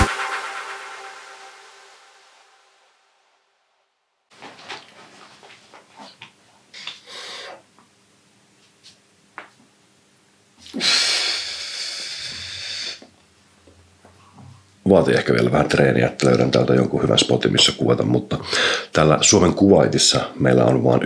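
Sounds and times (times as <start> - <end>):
long hissing exhale: 6.7 - 7.7, 10.6 - 13.1, 18.5 - 18.9
man breathing hard: 6.8 - 7.6, 10.7 - 13.1, 18.4 - 18.9.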